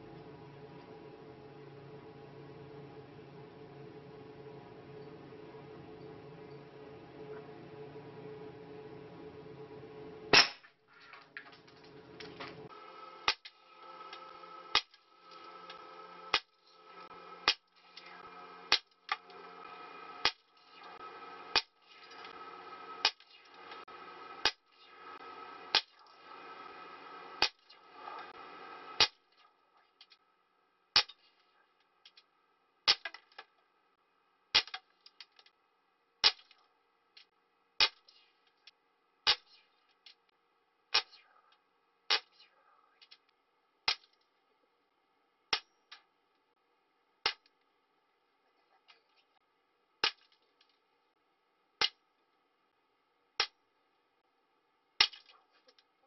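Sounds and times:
air rifle shots: 10.3 - 10.7.

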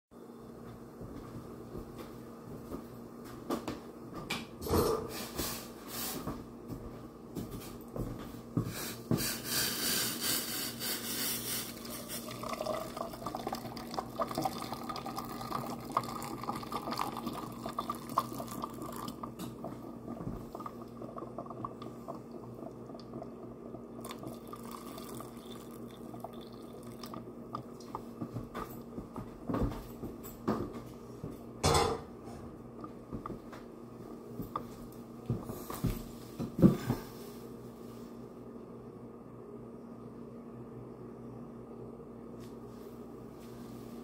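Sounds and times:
water pouring into a glass: 11.7 - 27.8.

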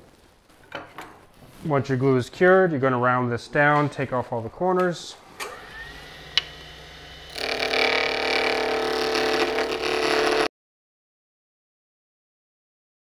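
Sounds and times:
wood lathe running: 5.4 - 10.5
gouge cutting spinning wood: 5.5 - 10.5.

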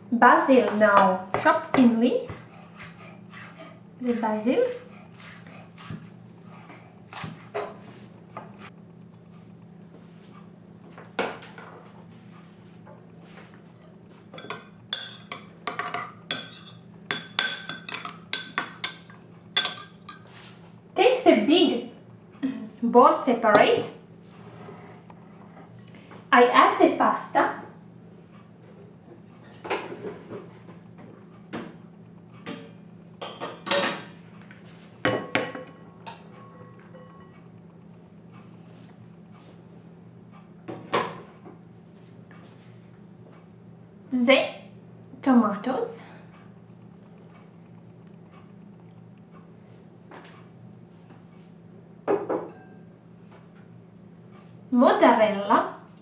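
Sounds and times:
metal spoon clinking glass bowl: 14.4 - 20.3, 52.5 - 52.8.

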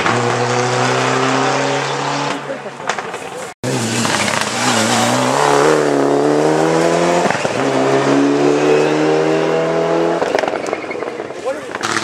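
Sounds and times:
rally car engine accelerating: 0.0 - 2.9, 3.6 - 12.0.

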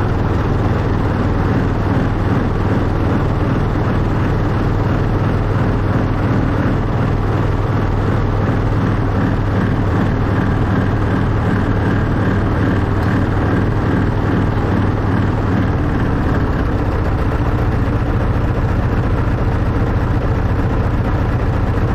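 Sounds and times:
miniature locomotive engine running: 0.0 - 21.9.

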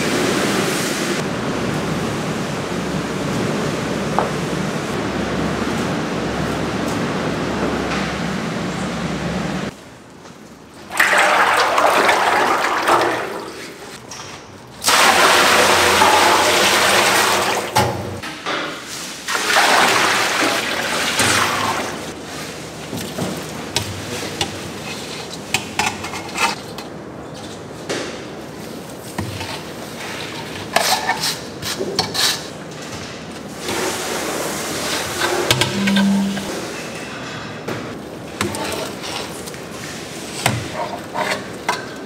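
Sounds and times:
water gushing and splashing: 10.9 - 14.0, 14.8 - 18.2, 19.3 - 22.2.

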